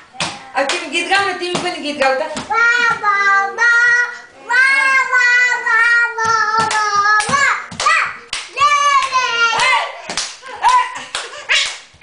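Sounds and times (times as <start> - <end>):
hand claps: 6.2 - 12.0.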